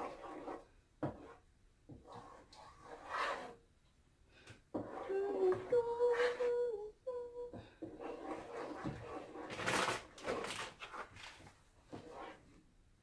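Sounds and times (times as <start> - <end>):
wooden spoon stirring in pot: 4.7 - 6.4, 7.8 - 11.0
person humming: 5.0 - 7.6.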